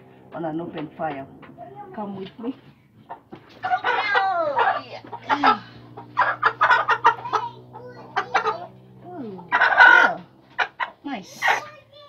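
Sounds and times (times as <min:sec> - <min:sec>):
chicken squawking: 0:03.1 - 0:08.7, 0:09.3 - 0:11.8.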